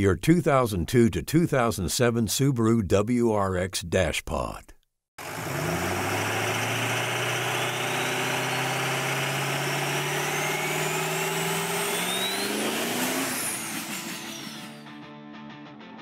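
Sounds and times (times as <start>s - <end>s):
car engine revving: 5.2s - 14.8s
turbo whistle: 7.5s - 9.2s, 10.1s - 14.9s.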